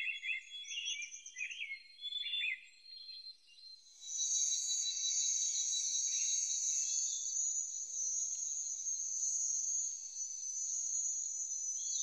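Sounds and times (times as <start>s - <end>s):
insects chirping: 4.0s - 12.0s.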